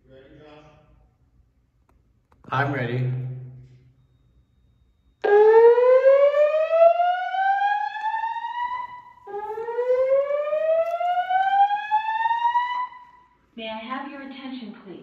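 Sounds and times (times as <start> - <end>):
fire alarm whoop tone: 4.0 - 13.4.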